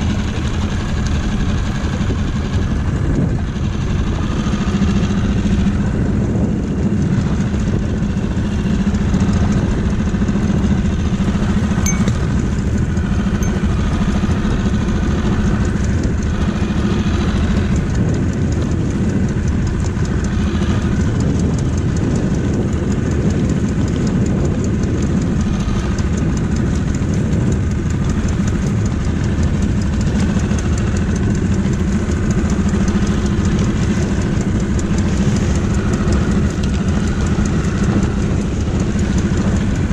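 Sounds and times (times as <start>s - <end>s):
outboard motor idling: 0.0s - 39.9s.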